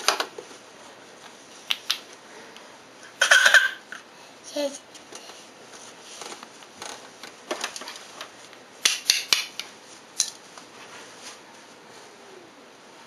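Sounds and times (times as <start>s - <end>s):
toy blocks clacking together: 3.2s - 4.0s.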